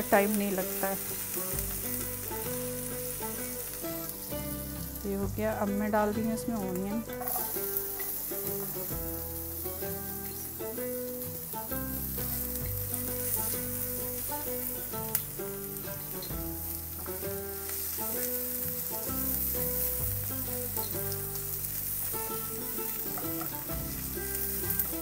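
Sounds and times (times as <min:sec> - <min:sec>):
instrumental music with bass line: 0:00.0 - 0:25.0
onions sizzling in hot oil: 0:00.0 - 0:25.0
spatula stirring in pan: 0:07.1 - 0:25.0.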